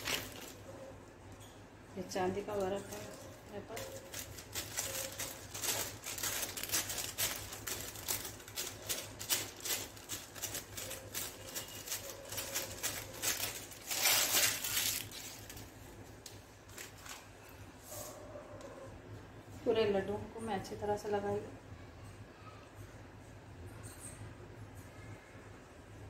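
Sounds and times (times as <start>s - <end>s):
paper sheets rustling: 0.0s - 0.7s, 2.8s - 15.7s, 16.7s - 17.3s.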